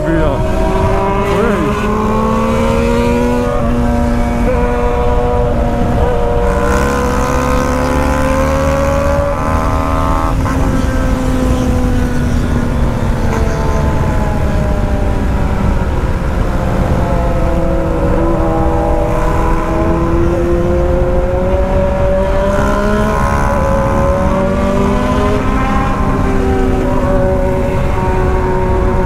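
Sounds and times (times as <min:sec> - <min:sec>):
wind rumble on microphone: 0:00.0 - 0:29.0.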